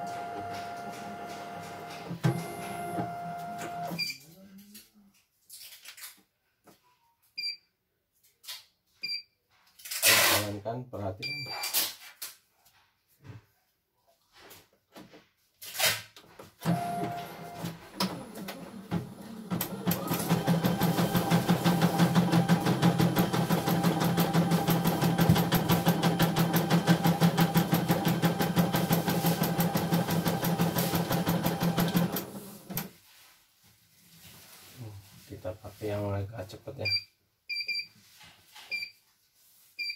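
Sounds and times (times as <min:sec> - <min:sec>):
embroidery machine stitching: 0:16.7 - 0:32.9.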